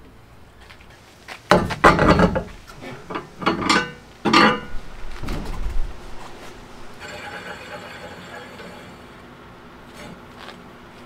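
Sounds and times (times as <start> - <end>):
metal clanking and clinking: 1.5 - 4.8, 7.0 - 9.2.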